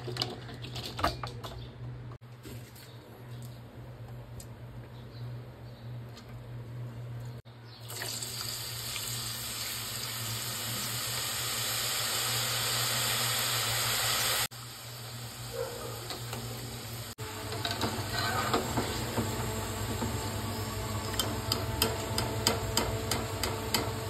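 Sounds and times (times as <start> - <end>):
potato slices sizzling in oil: 7.8 - 21.8.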